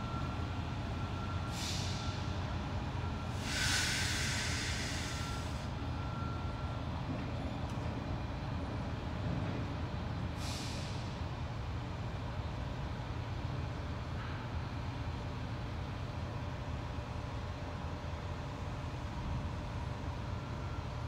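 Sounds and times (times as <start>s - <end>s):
vehicle engine and road rumble: 0.0s - 21.0s
short air hiss: 1.6s - 2.0s, 3.4s - 5.6s, 10.4s - 11.1s.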